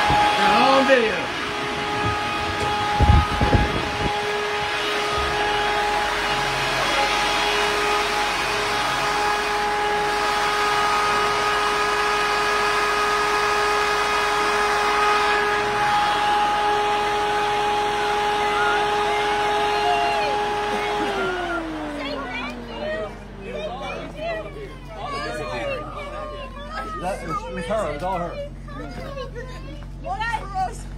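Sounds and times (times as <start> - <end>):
small motor droning with whine: 0.0 - 30.9
heavy low thuds: 1.3 - 6.1.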